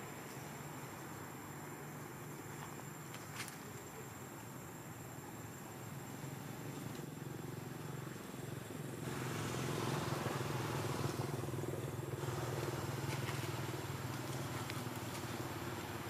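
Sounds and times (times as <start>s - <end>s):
engine running: 6.0s - 16.0s.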